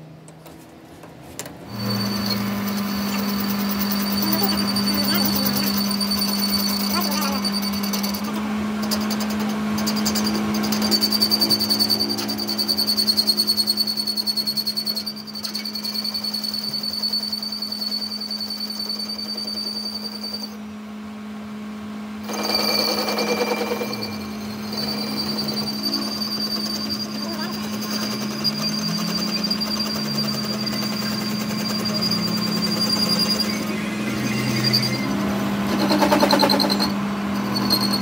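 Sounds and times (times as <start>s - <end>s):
lathe machine hum: 1.7s - 13.7s, 20.6s - 38.0s
high whine of metal cutting: 1.7s - 38.0s
rapid rhythmic chatter: 25.8s - 33.6s.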